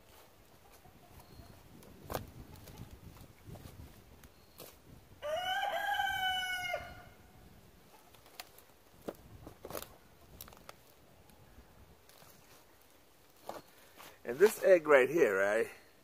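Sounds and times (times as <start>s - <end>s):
rooster crowing: 5.2s - 7.2s
dry sticks snapping and clicking: 8.1s - 11.0s.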